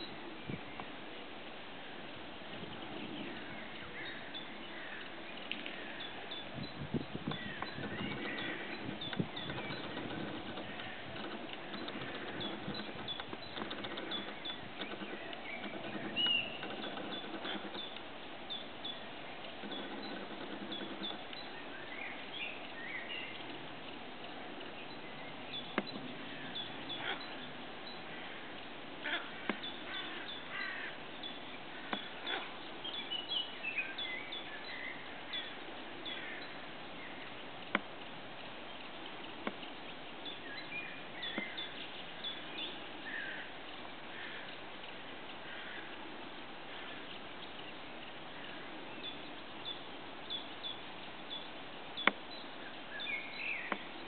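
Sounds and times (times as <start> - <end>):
low steady murmur: 0.0 - 54.0
small birds chirping: 0.0 - 54.0
sharp clicks: 7.2 - 18.1, 19.4 - 21.6.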